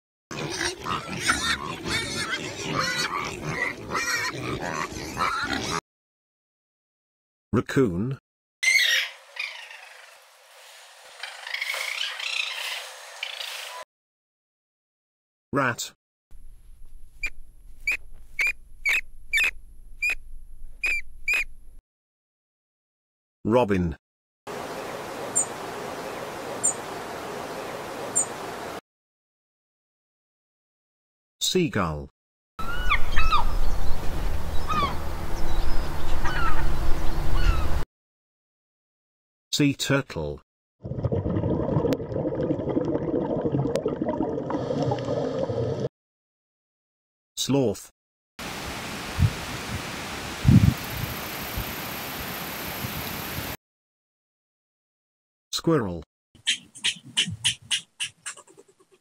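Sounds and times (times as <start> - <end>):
rat squeaking: 17.2 - 20.2, 20.8 - 21.5.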